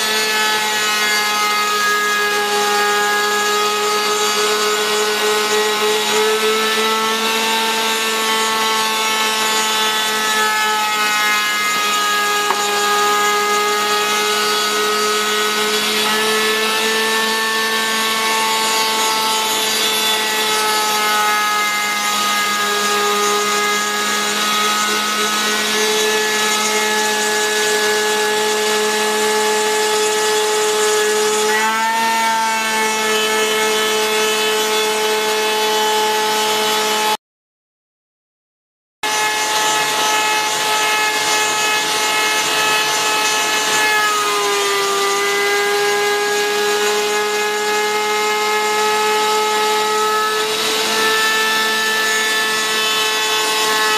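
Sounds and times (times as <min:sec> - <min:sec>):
cnc router cutting wood: 0:00.0 - 0:37.2, 0:39.0 - 0:53.9.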